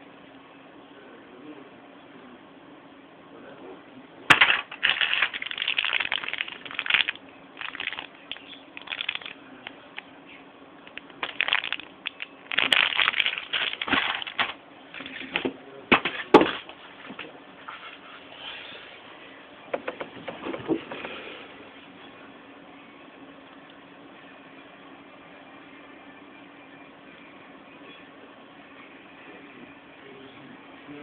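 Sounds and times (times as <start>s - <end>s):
plastic wrapping crinkling: 4.3s - 10.0s, 10.9s - 15.3s.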